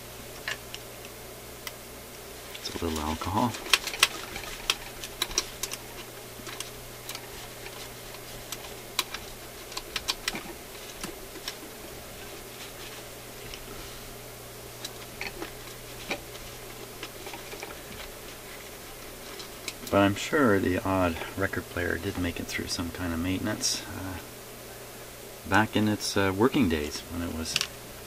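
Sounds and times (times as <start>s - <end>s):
steady low hum: 0.0s - 28.0s
tool clicking on metal parts: 2.6s - 11.6s.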